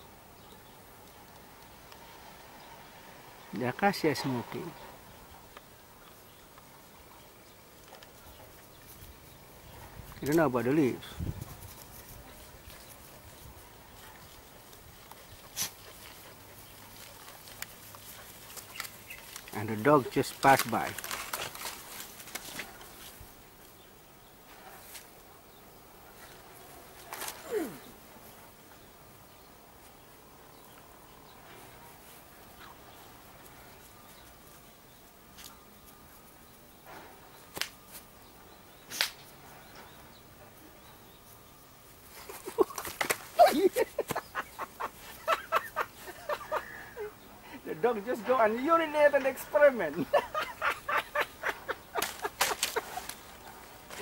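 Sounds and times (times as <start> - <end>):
faint outdoor ambience: 0.0 - 54.0
sharp click: 38.9 - 39.3
man laughing: 42.1 - 47.7, 49.8 - 53.1.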